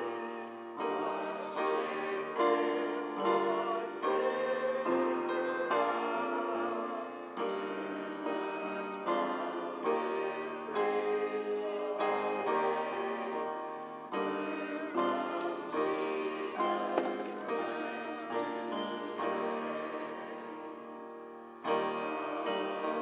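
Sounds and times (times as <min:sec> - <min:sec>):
choir singing a hymn: 0:00.0 - 0:23.0
piano accompaniment: 0:00.0 - 0:23.0.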